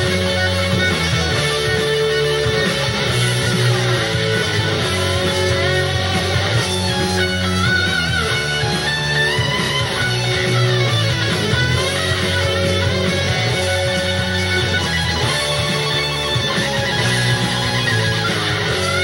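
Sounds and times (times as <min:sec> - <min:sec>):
electric guitar lead: 0:00.0 - 0:19.0
guitar and bass backing: 0:00.0 - 0:19.0.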